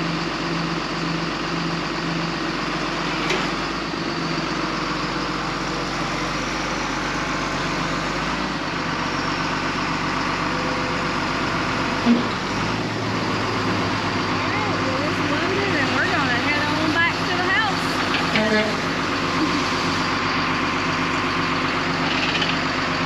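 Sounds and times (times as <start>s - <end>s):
truck engine running: 0.0s - 23.0s.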